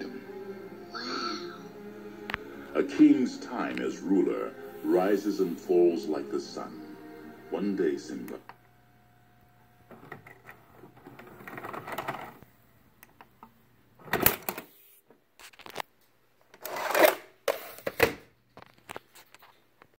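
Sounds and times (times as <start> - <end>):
cassette scraping out of slot: 9.8 - 12.4.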